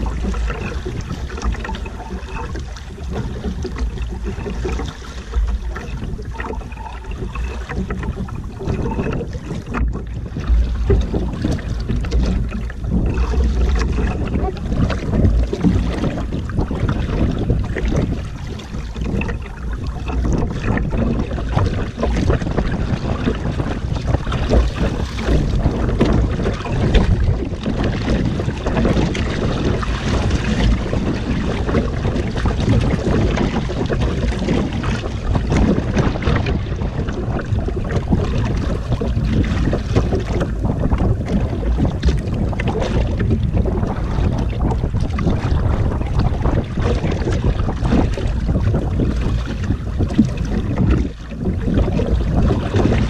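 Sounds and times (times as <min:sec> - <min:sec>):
water splashing against boat hull: 0:00.0 - 0:53.0
wind rumble on microphone: 0:00.0 - 0:53.0.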